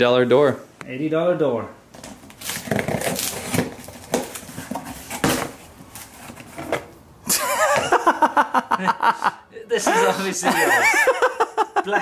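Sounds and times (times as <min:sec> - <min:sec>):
cardboard flaps rustling: 0:02.0 - 0:06.9
blade slitting packing tape: 0:02.3 - 0:04.4.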